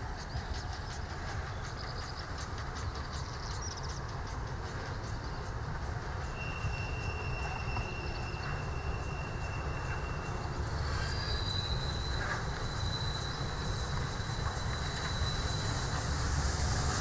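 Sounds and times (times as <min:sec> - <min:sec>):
train rumbling past: 0:00.0 - 0:17.0
high-pitched wheel squeal: 0:06.3 - 0:16.0.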